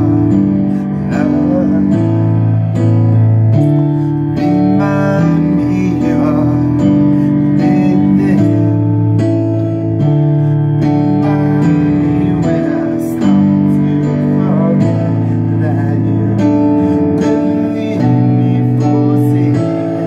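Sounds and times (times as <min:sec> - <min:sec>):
instrumental chords: 0:00.0 - 0:20.0
person singing: 0:00.0 - 0:20.0.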